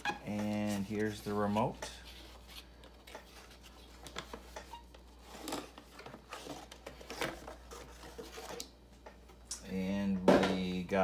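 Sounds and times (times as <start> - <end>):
cardboard rustling and scraping: 0.0 - 8.7.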